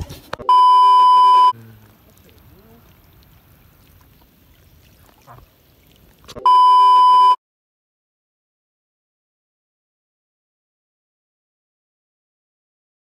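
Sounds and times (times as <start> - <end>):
water lapping over sand: 0.1 - 6.4
high test-tone beep: 0.4 - 1.6, 6.4 - 7.4.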